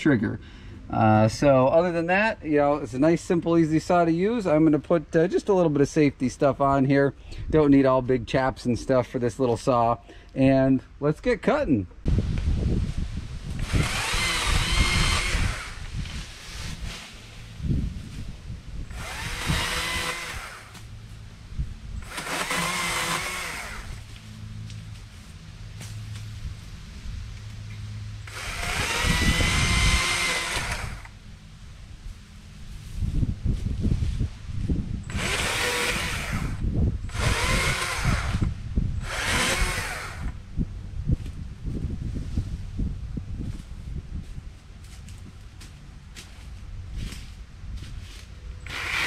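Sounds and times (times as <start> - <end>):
electric chainsaw cutting: 13.5 - 16.2, 18.9 - 20.9, 22.0 - 24.2, 28.2 - 31.2, 35.1 - 40.4, 48.6 - 49.0.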